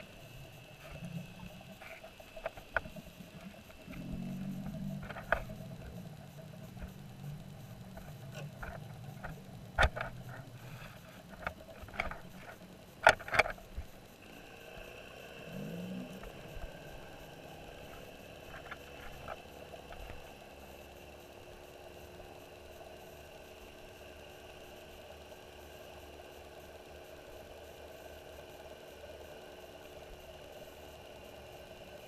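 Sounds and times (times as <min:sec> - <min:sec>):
low underwater hum: 0:00.0 - 0:32.0
underwater knocks and scrapes: 0:00.8 - 0:07.1, 0:07.7 - 0:13.9.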